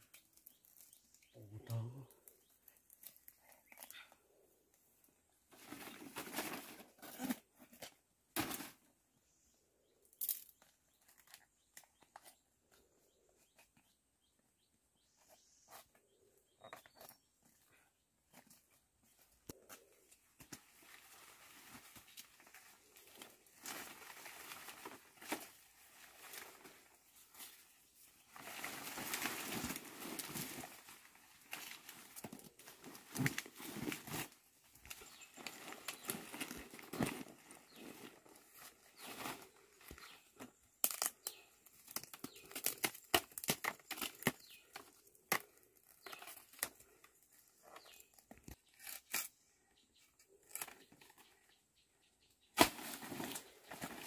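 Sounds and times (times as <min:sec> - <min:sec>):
leaves and stems rustling: 0:19.5 - 0:49.3, 0:52.6 - 0:54.0.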